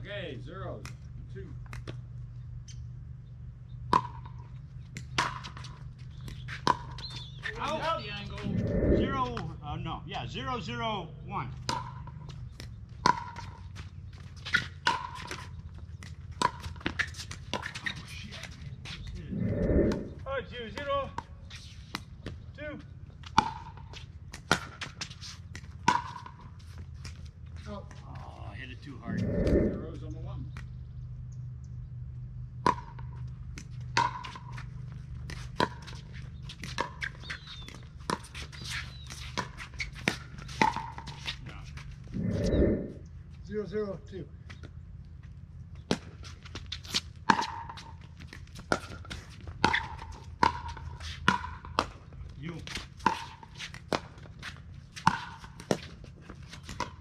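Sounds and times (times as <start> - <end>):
ball bouncing on court: 3.9 - 8.9, 11.6 - 13.8, 47.3 - 52.2
steady low hum: 7.8 - 9.7, 18.7 - 20.5, 28.5 - 35.8, 41.5 - 43.4.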